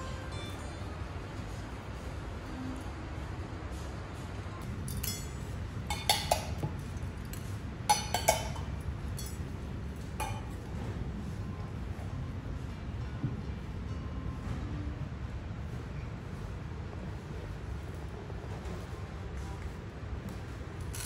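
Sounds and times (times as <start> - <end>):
steady low hum: 0.0 - 21.0
metal food bowls clinking: 4.8 - 9.5, 10.2 - 10.6.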